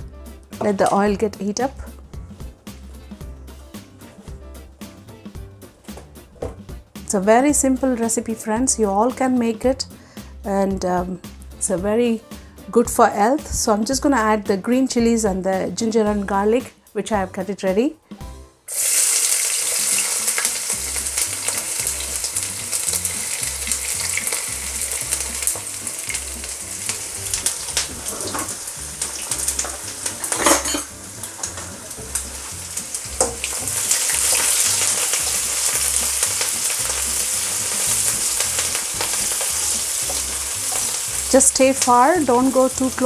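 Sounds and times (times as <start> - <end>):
vegetables sizzling in hot oil: 18.7 - 43.0.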